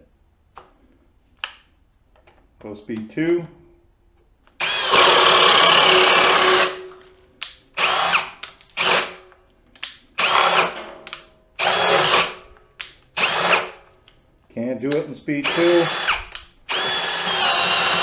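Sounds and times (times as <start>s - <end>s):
cordless drill boring into wood: 4.6s - 6.8s, 7.8s - 9.2s, 10.2s - 10.8s, 11.6s - 12.4s, 13.2s - 13.8s, 15.4s - 18.0s.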